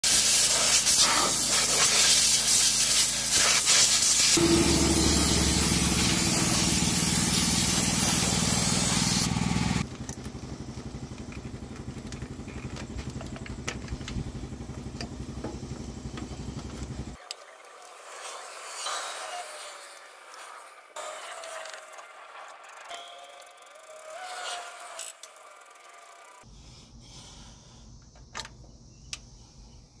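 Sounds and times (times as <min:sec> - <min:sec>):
aerosol spray can hissing: 0:00.1 - 0:09.8.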